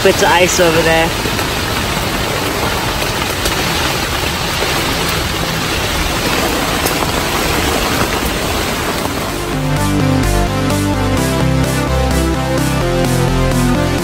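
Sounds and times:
heavy rain on a tent: 0.0s - 10.3s.

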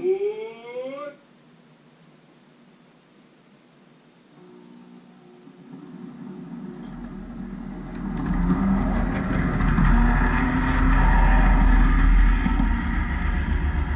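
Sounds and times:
model train passing: 5.5s - 13.9s.

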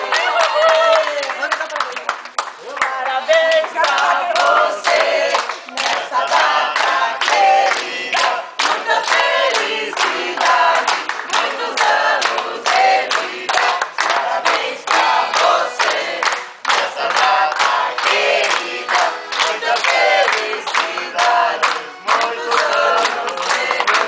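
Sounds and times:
group of people singing: 0.0s - 1.2s, 3.0s - 24.0s
people clapping a steady beat: 0.0s - 24.0s.

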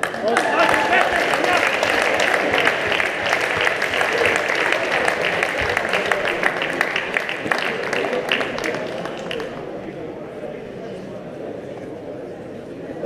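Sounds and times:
crowd applauding: 0.0s - 9.8s
voices: 0.0s - 13.0s.

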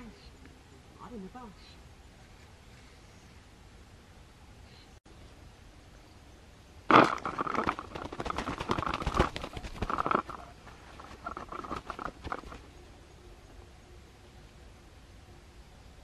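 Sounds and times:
pigeon wings flapping: 6.9s - 12.7s.

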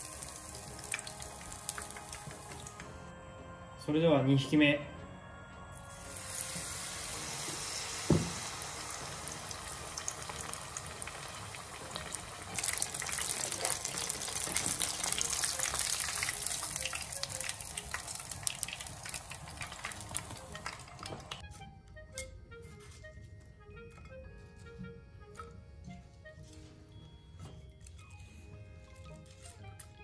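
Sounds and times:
fish deep-frying in hot oil: 0.0s - 3.0s, 5.9s - 21.4s.

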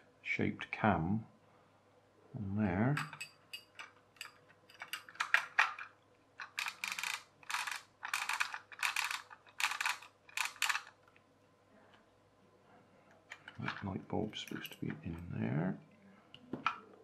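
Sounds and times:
plastic parts scraping rattles: 3.0s - 11.1s, 13.3s - 15.2s.

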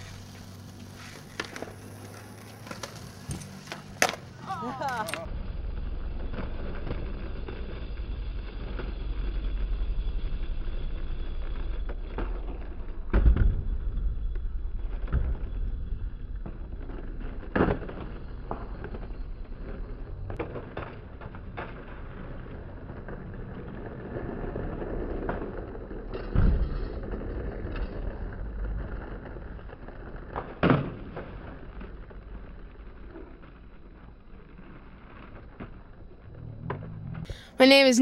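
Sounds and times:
skateboard clacking on ground: 0.0s - 5.3s
skateboard wheels rolling on asphalt: 0.0s - 38.0s.

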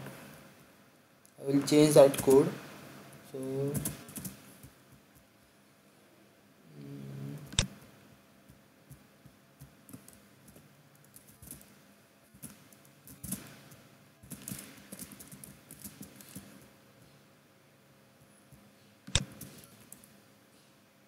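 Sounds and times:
typing on computer keyboard: 3.6s - 4.7s.

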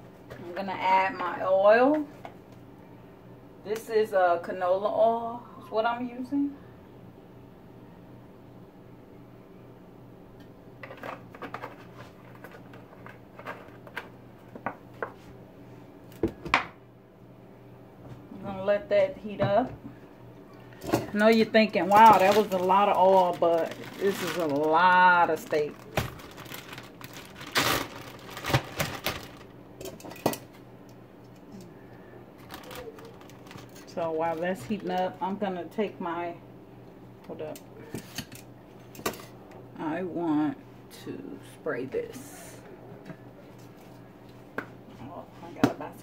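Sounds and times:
steady low hum: 0.0s - 46.0s
plastic bag rustling: 20.8s - 29.6s, 32.4s - 34.9s.

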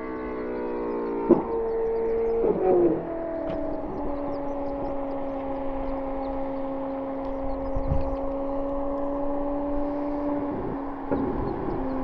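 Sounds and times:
car engine idling: 3.2s - 12.0s.

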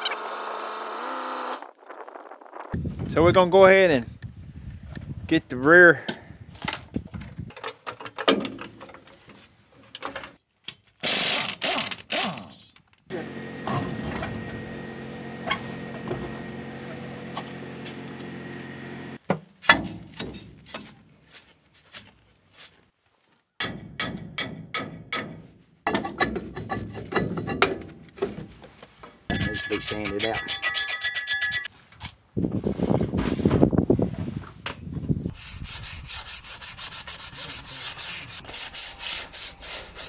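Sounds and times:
metal clanks and knocks: 7.5s - 10.8s, 19.3s - 21.0s, 23.6s - 28.6s, 29.3s - 31.7s.

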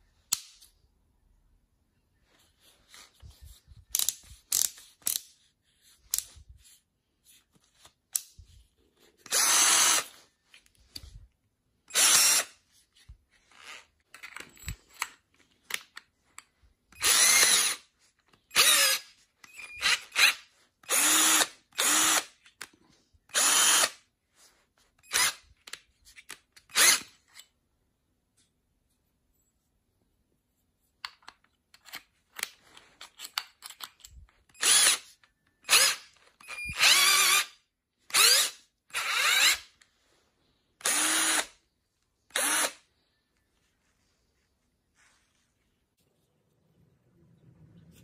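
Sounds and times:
cordless drill motor bursts: 9.3s - 10.1s, 11.9s - 12.5s, 17.0s - 17.8s, 18.6s - 19.0s, 19.6s - 22.3s, 23.3s - 23.9s, 34.6s - 35.0s, 35.6s - 37.5s, 38.1s - 39.6s, 40.8s - 41.5s, 42.3s - 42.8s.

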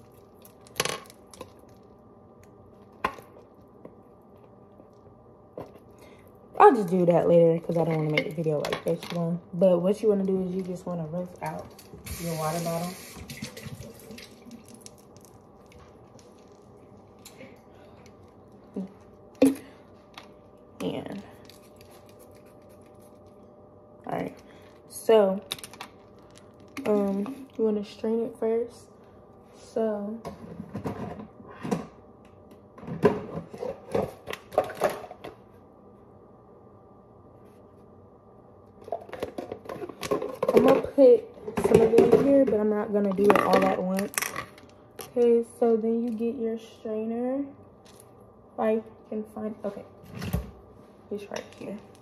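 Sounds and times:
faint hum: 0.0s - 52.0s
plastic kitchen items knocking: 38.9s - 44.4s.

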